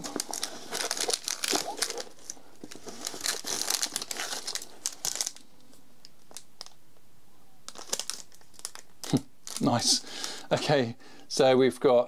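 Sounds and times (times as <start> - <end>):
packaging crinkling: 0.0 - 6.8, 7.7 - 10.4.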